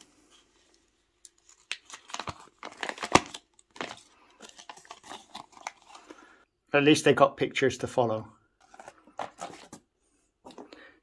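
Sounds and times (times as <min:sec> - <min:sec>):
paper crinkling and rustling: 0:00.0 - 0:06.1, 0:08.6 - 0:09.8.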